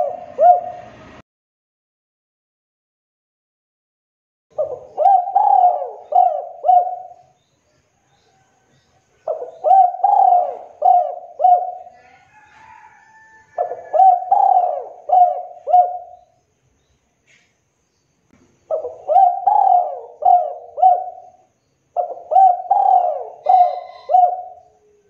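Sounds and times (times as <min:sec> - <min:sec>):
dove cooing: 0:00.0 - 0:01.1, 0:04.6 - 0:07.4, 0:09.2 - 0:16.4, 0:18.7 - 0:25.0.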